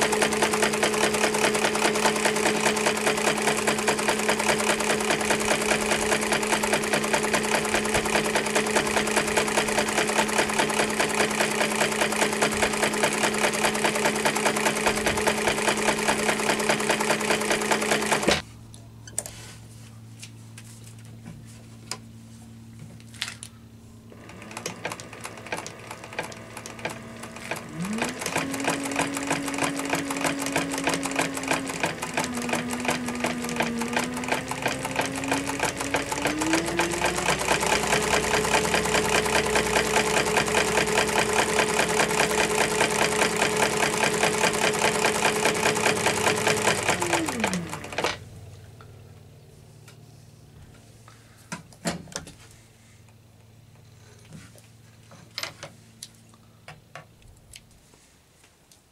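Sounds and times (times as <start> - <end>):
sewing machine running: 0.0 - 18.4, 24.1 - 48.3.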